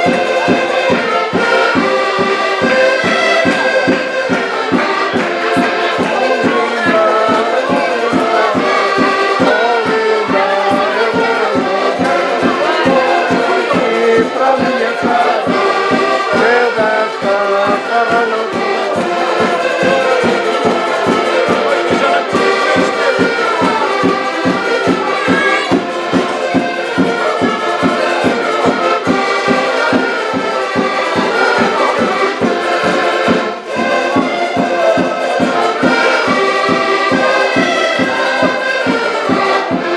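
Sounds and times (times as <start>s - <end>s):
accordions playing folk tune: 0.0s - 39.9s.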